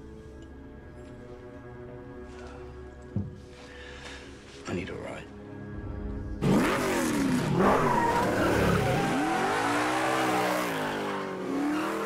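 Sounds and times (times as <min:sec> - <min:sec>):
car engine revving: 0:06.4 - 0:12.0.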